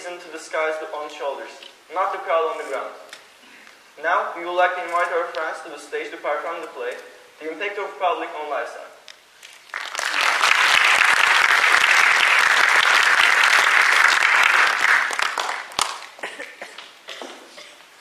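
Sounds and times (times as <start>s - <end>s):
audience applauding: 9.5s - 17.0s.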